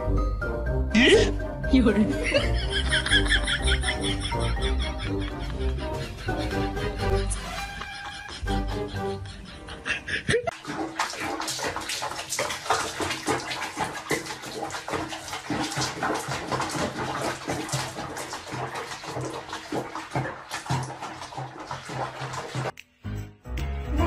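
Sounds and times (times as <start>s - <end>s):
water splashing in sink: 1.8s - 5.4s, 10.4s - 22.8s.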